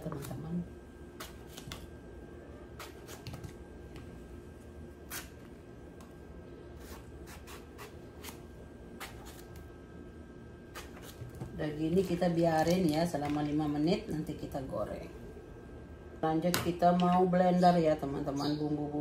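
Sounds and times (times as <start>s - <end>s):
faint steady hum: 0.0s - 19.0s
knife cutting eggplant: 1.2s - 1.9s, 2.7s - 3.6s, 5.0s - 6.1s, 6.8s - 9.7s, 10.6s - 13.3s.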